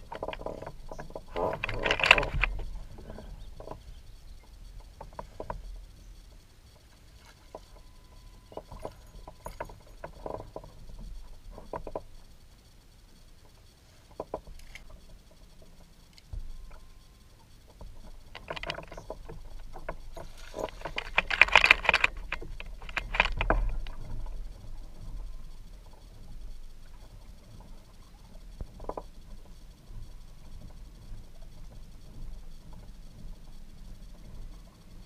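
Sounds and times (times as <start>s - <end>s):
knocks clicks and rustling: 0.0s - 3.9s, 17.7s - 24.4s
dense crackling: 0.0s - 35.0s.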